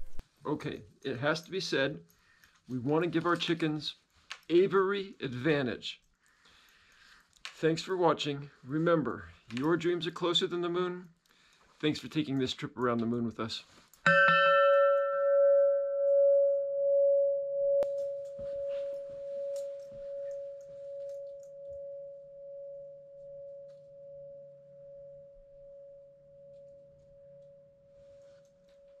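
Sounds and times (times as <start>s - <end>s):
metal bell ringing: 14.0s - 27.6s.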